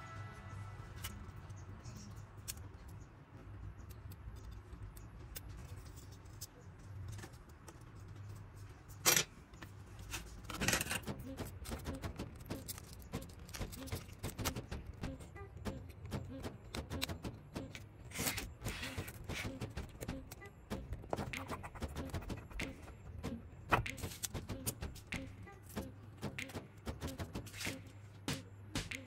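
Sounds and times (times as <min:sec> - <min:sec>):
small tools clicking and clinking: 0:08.9 - 0:14.8.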